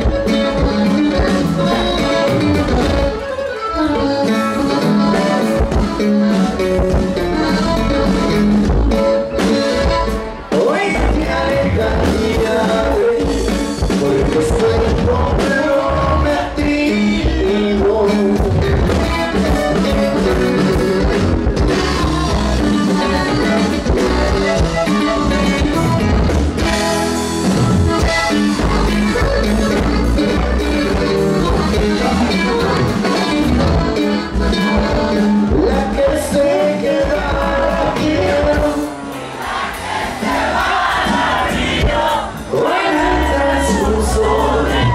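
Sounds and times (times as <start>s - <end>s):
accordion: 0.0s - 44.9s
bajo sexto guitar: 0.0s - 44.9s
drums: 0.0s - 44.9s
man singing into microphone: 9.3s - 24.6s, 34.5s - 39.0s, 41.8s - 44.9s.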